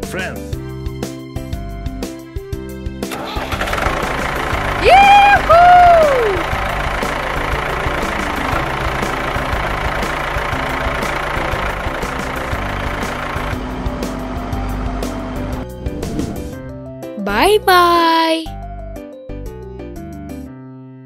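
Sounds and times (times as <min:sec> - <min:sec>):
vehicle engine running: 0:03.1 - 0:16.6.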